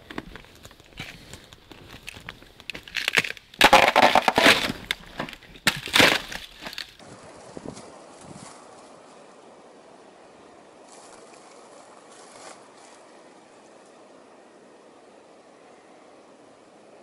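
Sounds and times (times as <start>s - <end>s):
ice cracking underfoot: 0.0s - 7.0s
faint steady hiss: 4.3s - 17.0s
footsteps crunching on frozen leaves: 10.8s - 13.2s.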